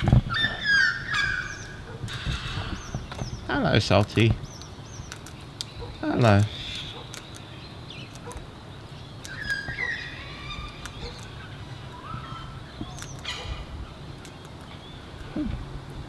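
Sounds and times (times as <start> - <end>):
cockatoo calls: 0.0 - 3.3, 5.7 - 7.3, 9.2 - 14.4
sharp clicks: 2.1 - 8.4.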